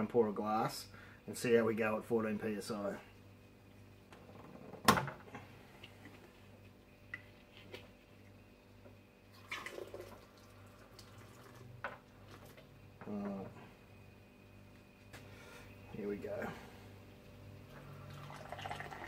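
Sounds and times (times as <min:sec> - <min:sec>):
liquid spurting and dripping: 0:09.3 - 0:12.7.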